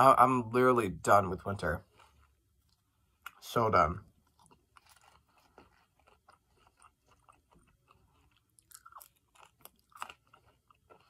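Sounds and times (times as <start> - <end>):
chewing food: 1.8 - 11.0.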